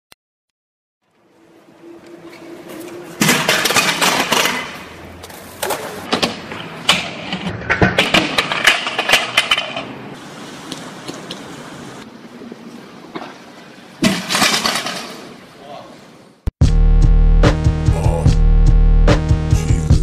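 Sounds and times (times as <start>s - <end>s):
scooter wheels rolling on concrete: 1.0s - 13.6s.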